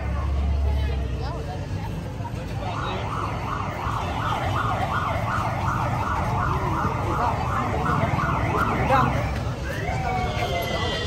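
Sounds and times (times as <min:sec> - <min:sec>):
low street rumble: 0:00.0 - 0:11.0
siren yelping: 0:02.7 - 0:11.0.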